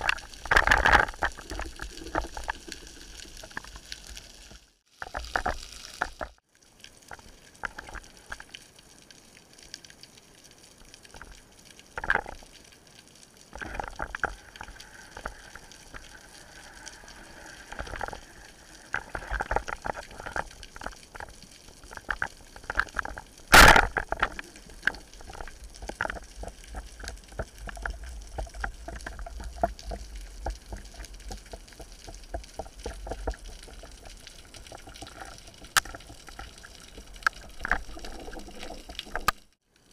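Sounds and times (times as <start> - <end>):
underwater clicks: 0.0 - 2.8, 13.6 - 39.6
water moving and crackling: 0.0 - 39.9.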